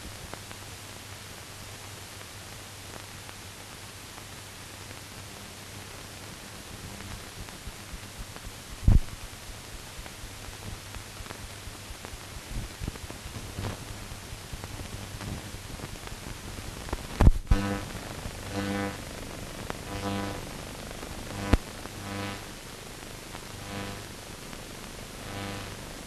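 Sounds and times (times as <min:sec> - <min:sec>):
film surface hiss: 0:00.0 - 0:26.0
clicks and pops: 0:16.8 - 0:17.9, 0:21.3 - 0:21.7
low buzz: 0:17.1 - 0:26.0.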